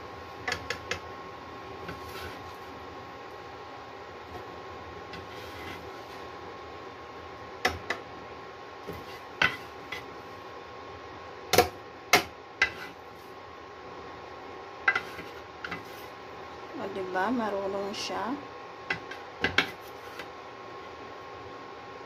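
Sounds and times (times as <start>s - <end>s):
spatula scraping frying pan: 5.1s - 6.3s, 8.9s - 10.2s, 12.6s - 13.2s, 14.9s - 16.2s.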